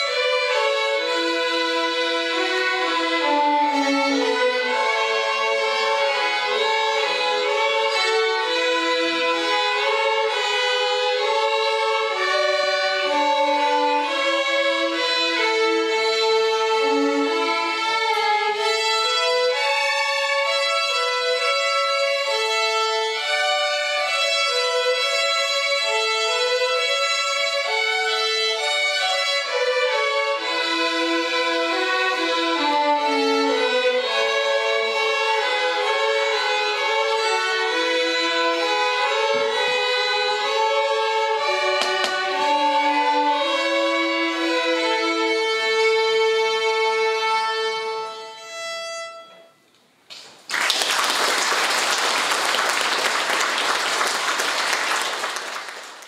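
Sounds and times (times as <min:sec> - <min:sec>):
violin ensemble playing: 0:00.0 - 0:49.6
audience applauding: 0:50.1 - 0:56.0.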